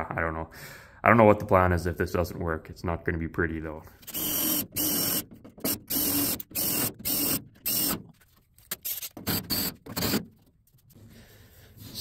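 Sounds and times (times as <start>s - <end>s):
cordless drill drilling into steel: 4.1s - 8.0s.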